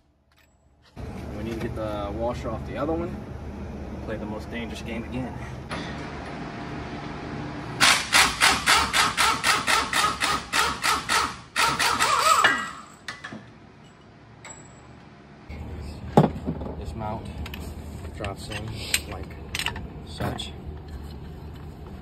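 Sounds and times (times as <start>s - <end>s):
air impact wrench hammering: 7.8s - 13.3s.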